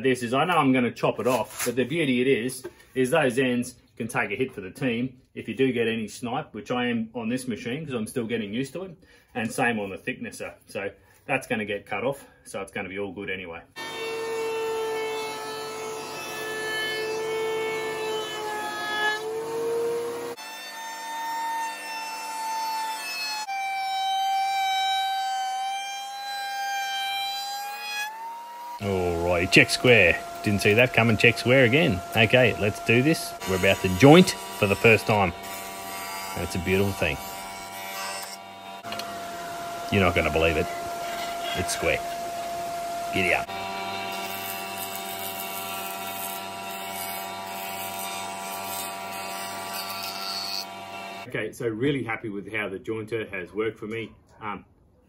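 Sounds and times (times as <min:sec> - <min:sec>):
jointer cutting wood: 0:13.8 - 0:51.3
thicknesser planing wood: 0:13.8 - 0:51.3.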